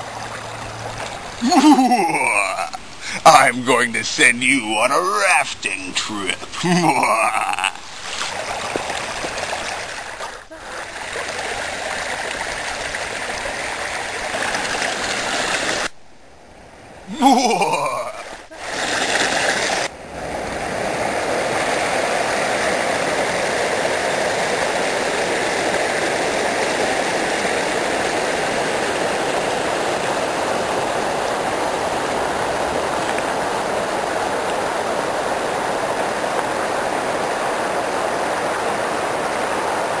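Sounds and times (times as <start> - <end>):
river rushing over rocks: 0.0 - 15.9, 17.1 - 40.0
bright hissy noise: 1.4 - 8.3.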